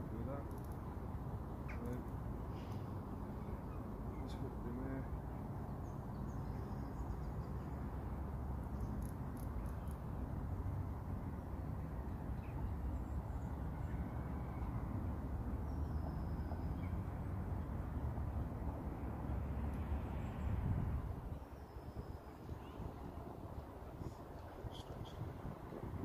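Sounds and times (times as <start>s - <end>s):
faint bird chirps: 24.1s - 25.4s.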